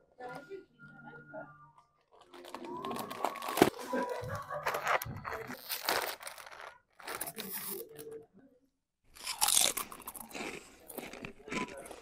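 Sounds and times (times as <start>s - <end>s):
chip bag crinkling and tearing: 2.1s - 8.2s, 9.2s - 12.0s.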